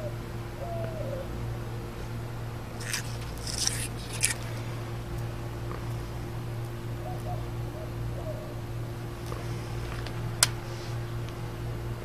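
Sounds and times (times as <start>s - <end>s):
steady low hum: 0.0s - 12.0s
lizard walking on wood mulch: 2.8s - 4.7s.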